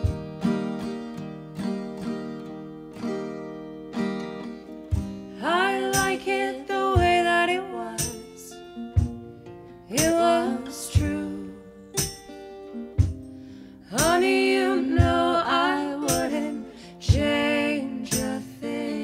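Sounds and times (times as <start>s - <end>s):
acoustic guitars strummed: 0.0s - 19.0s
women singing together: 5.4s - 8.5s, 9.9s - 11.7s, 13.8s - 19.0s.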